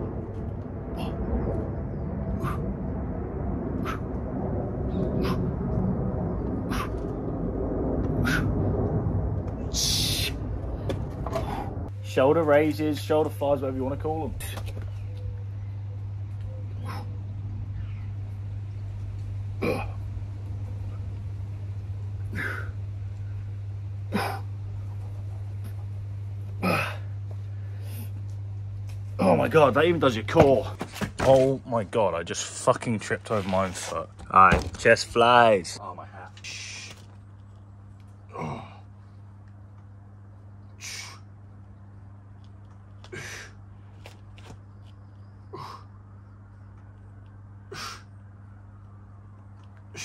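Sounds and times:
steady low hum: 0:00.0 - 0:50.0
man breathing out hard: 0:43.1 - 0:43.6, 0:47.7 - 0:48.1.

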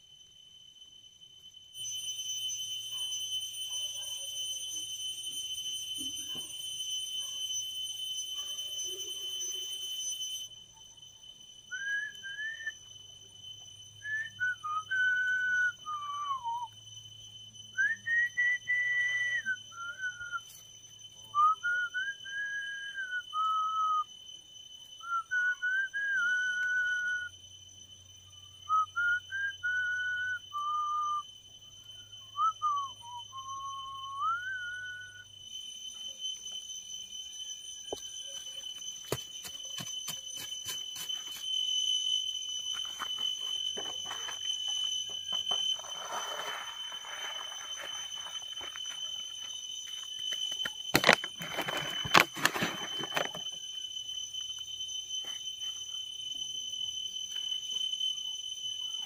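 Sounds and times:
person whistling a slow tune: 0:11.7 - 0:12.9, 0:14.0 - 0:16.8, 0:17.7 - 0:20.7, 0:21.3 - 0:24.1, 0:25.0 - 0:27.4, 0:28.7 - 0:31.3, 0:32.3 - 0:35.3.

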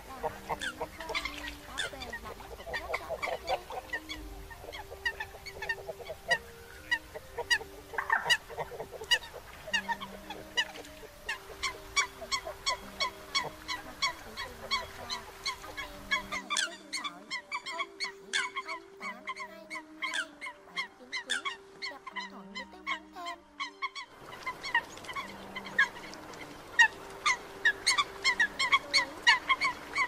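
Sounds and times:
coots low honking calls: 0:00.0 - 0:30.0
coots high sharp calls: 0:00.5 - 0:16.7.

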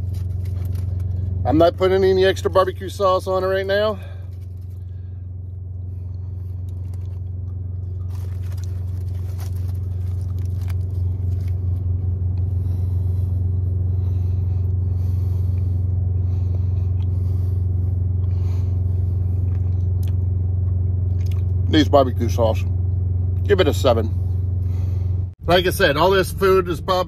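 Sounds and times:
foil rustling and crackling: 0:00.0 - 0:01.7, 0:03.7 - 0:05.1, 0:06.0 - 0:13.2
truck engine idling: 0:00.0 - 0:27.0
person chewing: 0:06.0 - 0:12.5, 0:19.4 - 0:21.6.

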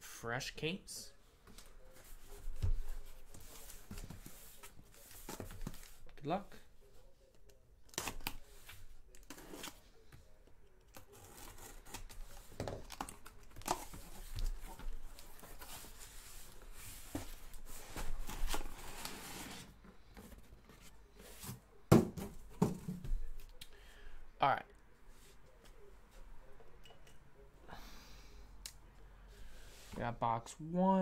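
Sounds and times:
cardboard scraping and rustling: 0:13.7 - 0:21.6
boxes knocking when set down: 0:21.9 - 0:23.2.

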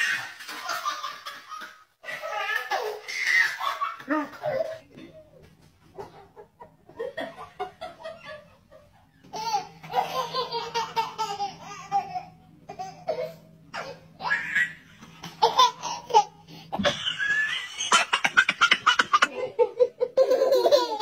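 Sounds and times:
toddler laughing: 0:00.0 - 0:04.8, 0:09.2 - 0:21.0.

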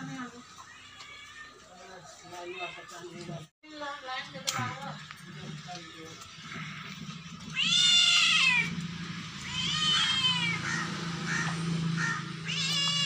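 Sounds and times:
cat meowing: 0:07.5 - 0:08.7, 0:09.4 - 0:10.8, 0:12.0 - 0:13.0.

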